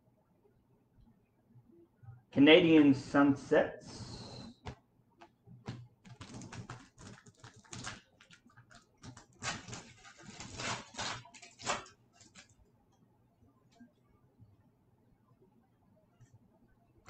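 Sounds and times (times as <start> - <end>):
foil wrapper tearing and crinkling: 6.0 - 12.6.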